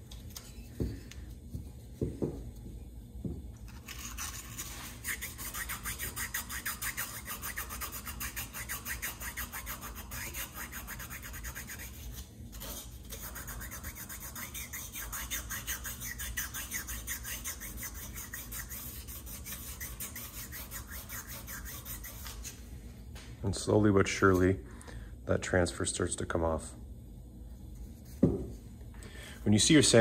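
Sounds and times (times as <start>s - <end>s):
sandpaper scrubbing metal: 3.7s - 22.6s.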